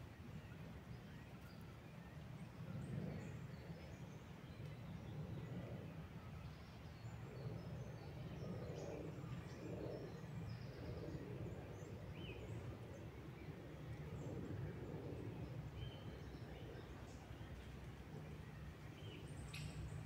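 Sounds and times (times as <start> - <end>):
low woodland rush: 0.0 - 20.0
small birds chirping: 15.1 - 20.0.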